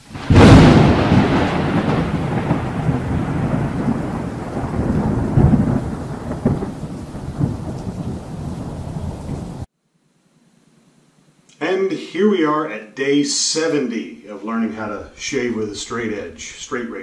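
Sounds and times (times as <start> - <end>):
rolling thunder: 0.0 - 9.7
sharp thunder cracks: 0.0 - 9.7
thunder clap: 0.0 - 9.7
rain-like hiss: 0.0 - 11.9.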